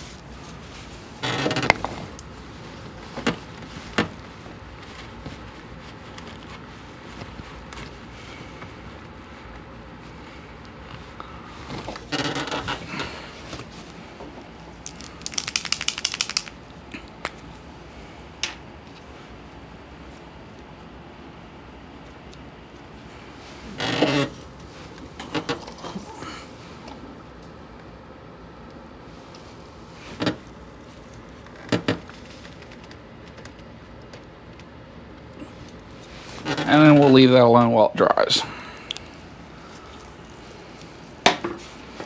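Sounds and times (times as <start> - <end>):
rubbing and handling: 0.0 - 17.7, 35.4 - 37.4
fast run of clicks: 14.8 - 16.6
sharp clicks: 14.9 - 16.6.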